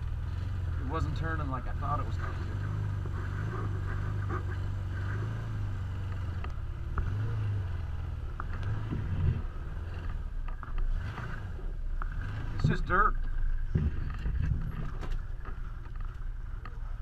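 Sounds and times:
off-road vehicle engine running: 0.0s - 17.0s
knocks and rattles: 12.0s - 16.8s.

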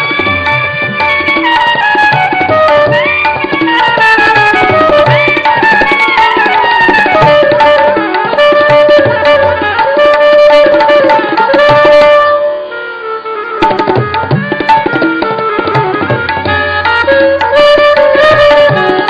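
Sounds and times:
tabla strokes: 0.0s - 19.0s
saxophones playing a melody: 7.0s - 14.0s, 14.8s - 19.0s.

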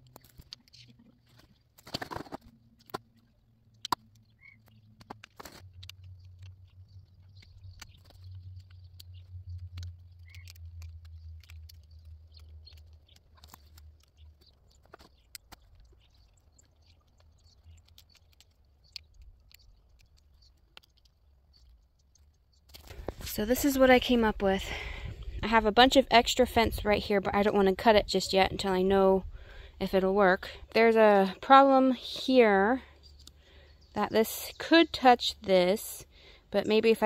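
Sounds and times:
low rumble: 5.7s - 14.1s.

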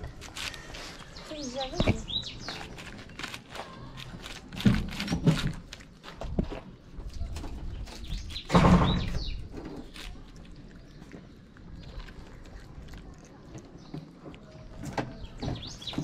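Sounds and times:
cat crunching kibble: 2.1s - 7.2s, 9.4s - 15.9s.

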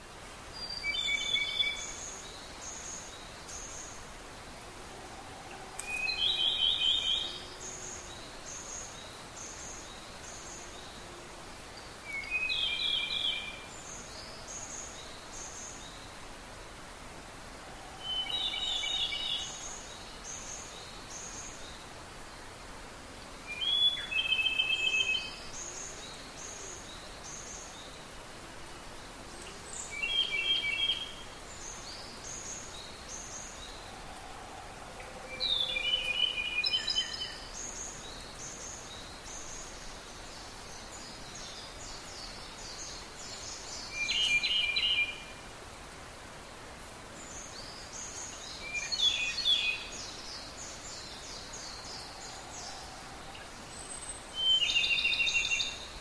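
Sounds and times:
background hiss: 0.0s - 56.0s
songbird singing phrase: 0.4s - 16.8s, 17.9s - 22.6s, 23.4s - 34.2s, 34.8s - 45.6s, 47.0s - 56.0s.

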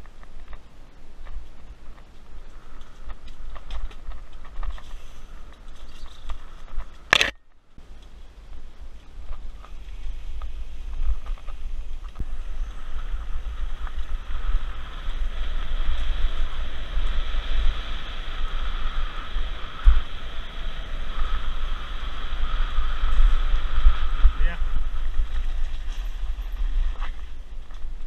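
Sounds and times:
wind buffeting microphone: 8.6s - 28.0s.

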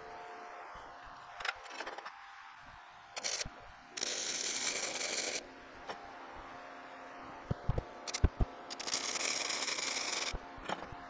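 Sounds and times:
welding arc crackling: 8.1s - 10.4s.

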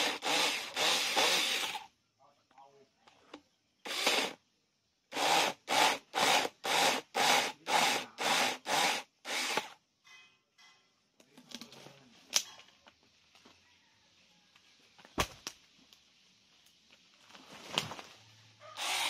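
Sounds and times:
mini chainsaw cutting log: 0.0s - 1.9s, 3.8s - 4.4s, 5.1s - 9.8s, 18.8s - 19.0s.

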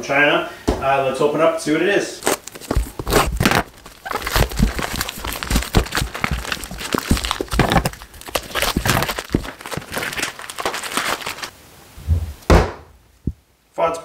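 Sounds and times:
plastic bag crinkling and tearing: 2.2s - 11.5s.

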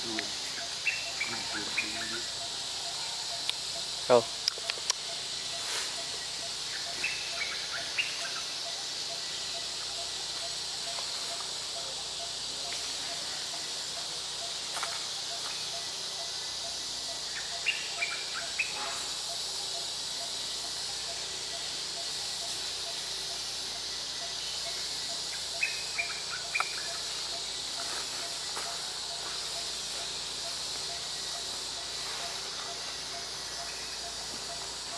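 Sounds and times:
insect chorus: 0.0s - 34.9s.

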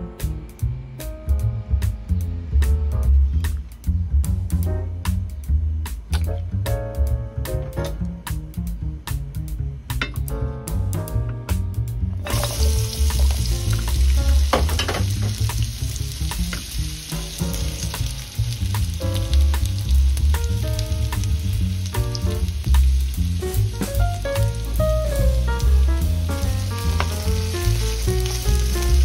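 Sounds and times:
potatoes sizzling in hot oil: 12.2s - 29.0s.

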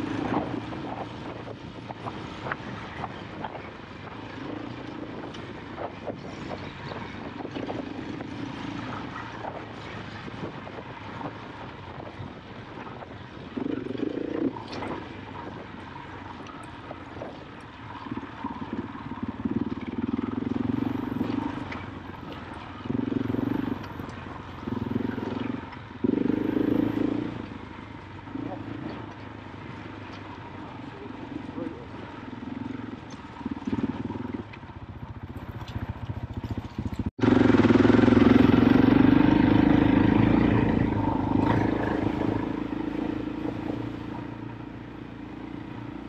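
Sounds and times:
motorbike engine revving: 18.1s - 46.0s.

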